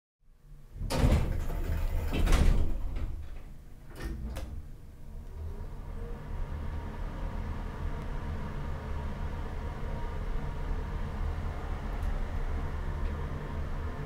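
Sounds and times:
steady low rumble: 0:04.6 - 0:14.0.

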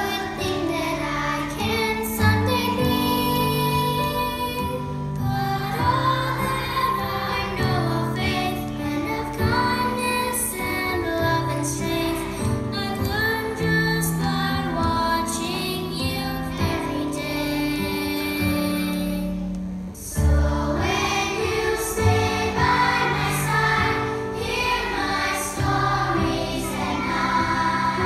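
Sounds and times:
children's choir singing: 0:00.0 - 0:28.0
instrumental accompaniment: 0:19.4 - 0:28.0.

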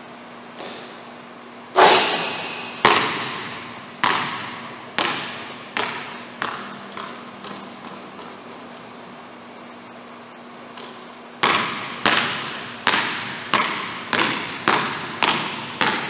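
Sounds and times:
basketball bouncing on gym floor: 0:00.6 - 0:01.0, 0:01.8 - 0:08.9, 0:10.7 - 0:16.0
basketball hitting hoop: 0:01.8 - 0:07.7, 0:10.8 - 0:16.0.

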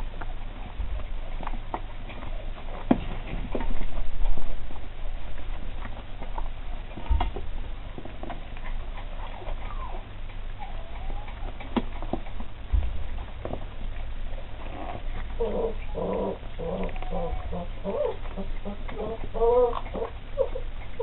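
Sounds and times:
puppies chewing raw meat: 0:00.0 - 0:21.0
puppy high-pitched vocal sound: 0:09.2 - 0:11.7, 0:15.4 - 0:21.0
puppy squeaks and whines: 0:09.4 - 0:11.4, 0:19.1 - 0:20.7.

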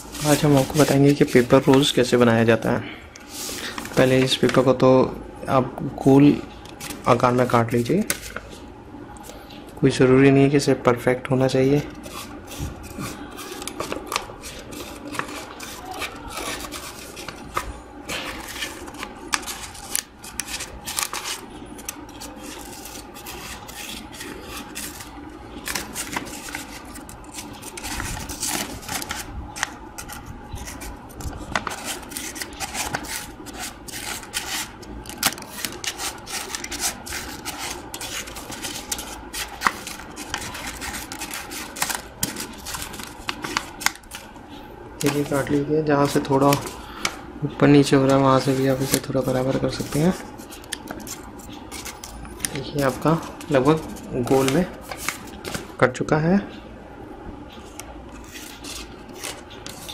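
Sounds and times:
paper rustling and crinkling: 0:00.0 - 0:02.2, 0:11.9 - 0:44.4, 0:45.0 - 0:55.8, 0:57.7 - 0:59.9
scissors snipping paper: 0:11.9 - 0:44.3.

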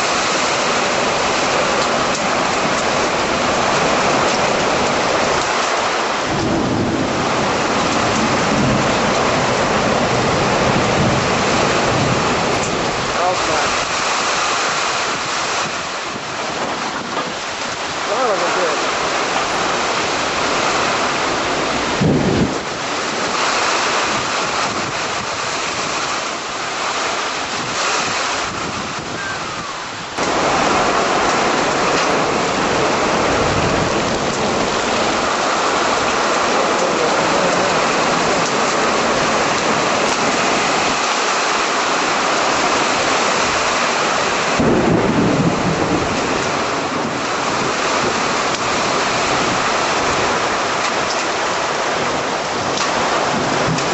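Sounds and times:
heavy rain pouring: 0:00.0 - 0:53.9
thunder crack: 0:06.2 - 0:12.9, 0:21.8 - 0:23.4, 0:30.2 - 0:41.1, 0:44.4 - 0:50.9.

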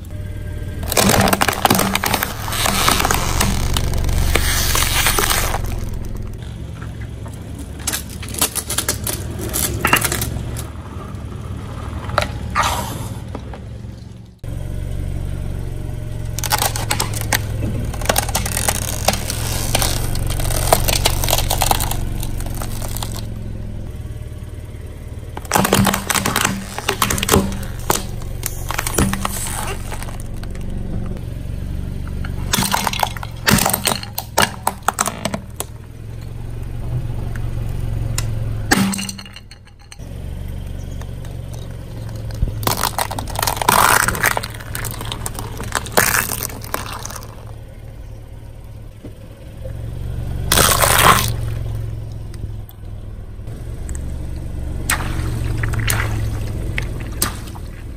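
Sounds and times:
low engine hum: 0:00.0 - 0:57.9
plastic plates cracking: 0:00.8 - 0:06.4, 0:07.6 - 0:10.7, 0:16.4 - 0:23.3, 0:25.4 - 0:31.2, 0:32.5 - 0:35.8, 0:41.0 - 0:47.6
tyre crushing plastic: 0:00.8 - 0:06.5, 0:07.3 - 0:10.7, 0:16.3 - 0:23.3, 0:25.4 - 0:31.2, 0:32.4 - 0:36.2, 0:41.0 - 0:47.7, 0:50.5 - 0:51.6.

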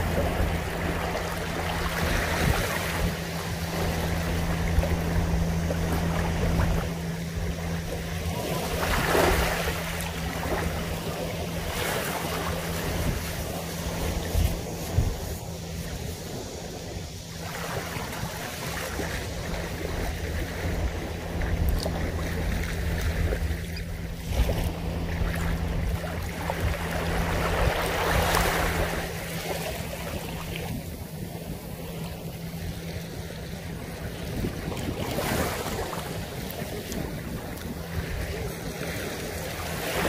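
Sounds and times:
waves washing on sandy shore: 0:00.0 - 0:40.0.

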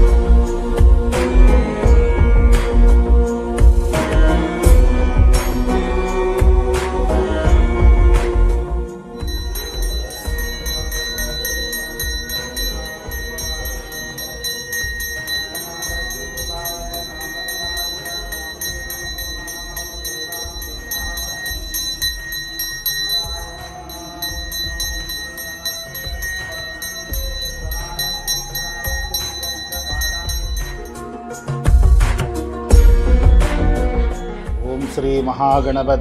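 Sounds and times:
bell rung rapidly: 0:09.2 - 0:31.0.

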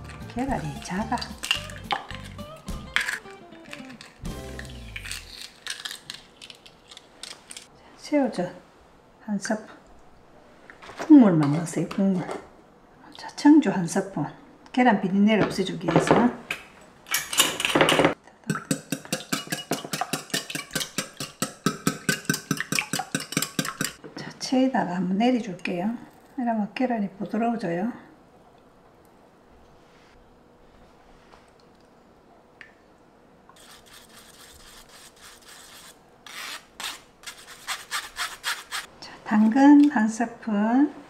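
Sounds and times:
whisk clicking against glass: 0:18.5 - 0:24.0.

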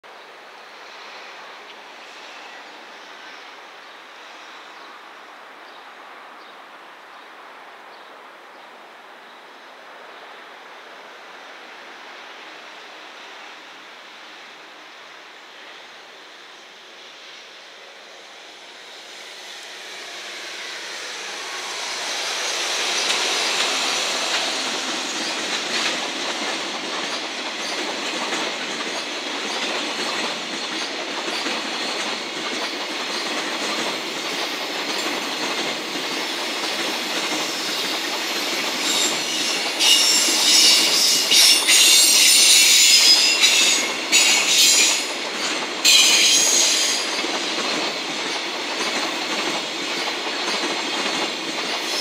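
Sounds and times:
electric locomotive passing: 0:00.1 - 0:06.4, 0:09.9 - 0:52.0
steel wheels running over rails: 0:18.4 - 0:52.0
high-pitched wheel squeal: 0:38.8 - 0:45.2, 0:45.9 - 0:47.1.

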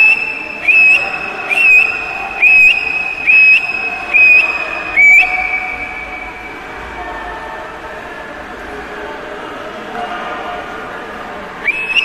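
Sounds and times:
loud whistle blasts: 0:00.0 - 0:06.6, 0:11.6 - 0:12.0
crowd cheering: 0:00.0 - 0:07.5, 0:11.5 - 0:12.0
pool hall background noise: 0:00.0 - 0:12.0.

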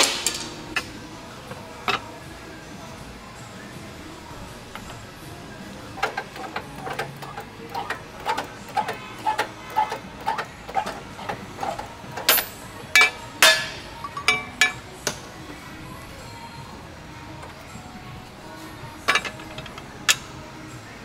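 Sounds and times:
hydraulic press clicking: 0:04.6 - 0:05.1, 0:05.9 - 0:15.3, 0:19.0 - 0:20.4.

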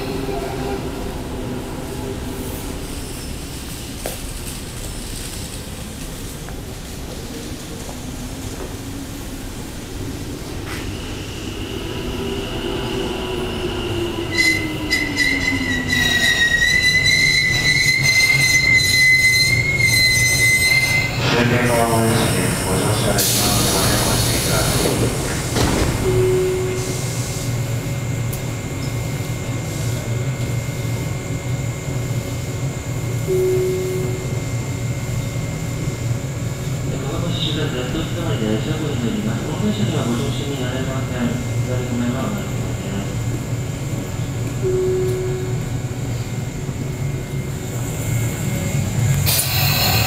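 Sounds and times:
standing electric train humming: 0:00.0 - 0:50.0
brief tone: 0:26.0 - 0:27.2, 0:33.2 - 0:35.4, 0:44.6 - 0:46.4
thin high whine: 0:33.2 - 0:36.0.

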